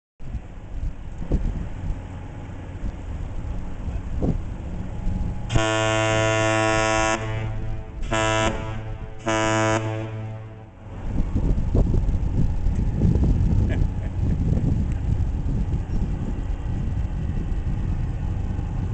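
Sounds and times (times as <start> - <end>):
deep ship's horn blasts: 3.9 - 11.4.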